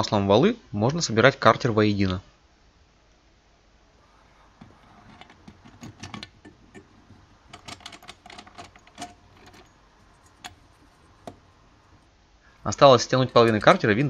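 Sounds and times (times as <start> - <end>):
metal engine parts clicking together: 4.6 - 14.0.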